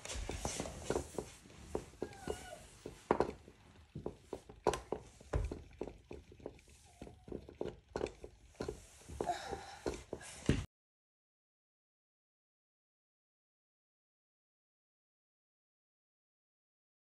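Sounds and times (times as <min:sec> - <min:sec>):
light clicks and knocks: 0:00.0 - 0:10.7
faint squeaky glides: 0:02.0 - 0:02.9.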